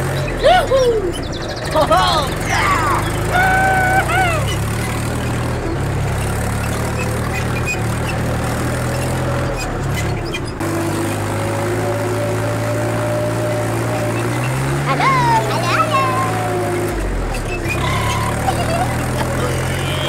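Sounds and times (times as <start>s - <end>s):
model tractor engine drone: 0.0s - 20.0s.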